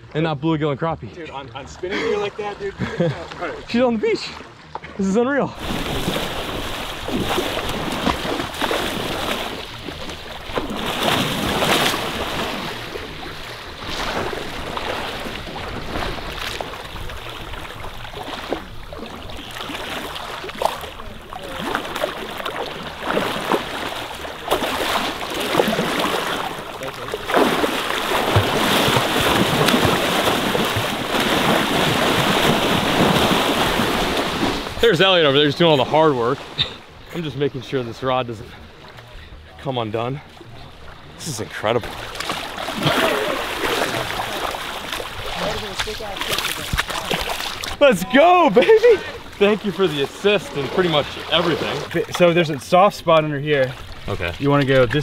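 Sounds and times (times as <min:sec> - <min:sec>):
surf washing: 0:01.2 - 0:55.0
fish thrashing and splashing: 0:05.6 - 0:34.8, 0:41.8 - 0:47.8.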